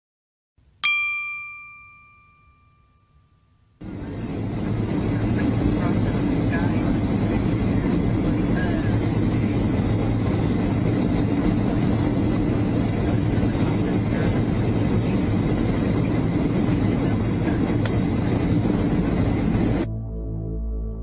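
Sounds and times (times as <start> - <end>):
jet engine cabin noise: 3.8 - 19.9.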